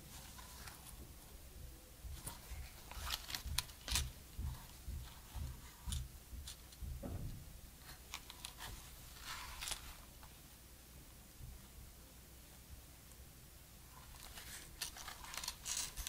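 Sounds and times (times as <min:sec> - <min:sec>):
gloved hands handling camera: 0:02.1 - 0:06.8, 0:07.9 - 0:10.1, 0:14.0 - 0:16.0.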